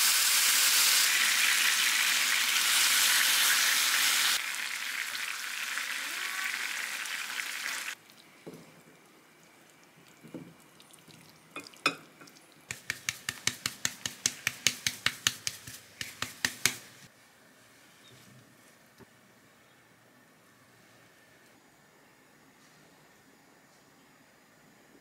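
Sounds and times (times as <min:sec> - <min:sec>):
food sizzling in a pan: 0:00.0 - 0:08.0.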